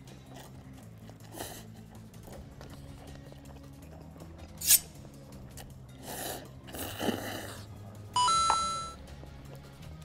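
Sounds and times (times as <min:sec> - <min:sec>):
slurping noodles: 0:00.2 - 0:03.5, 0:05.6 - 0:07.8
two-note electronic chime: 0:08.2 - 0:09.0.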